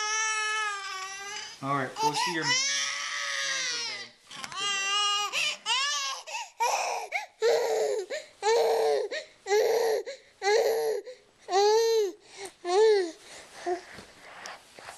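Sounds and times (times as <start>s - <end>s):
baby crying: 0.0s - 13.8s.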